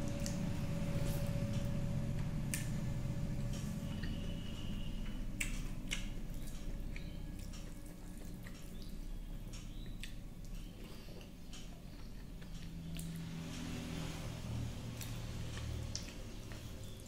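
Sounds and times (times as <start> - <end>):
low steady hum: 0.0 - 17.0
wet chewing and lip-smacking: 5.0 - 13.3, 14.9 - 17.0.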